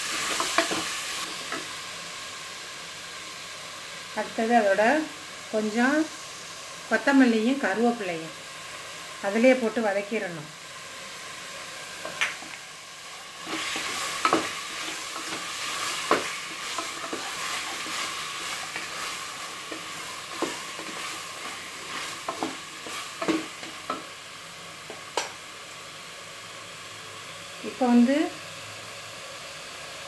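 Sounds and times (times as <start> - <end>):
chicken sizzling in oil: 0.0 - 30.0
wooden spatula scraping pot: 13.4 - 24.0.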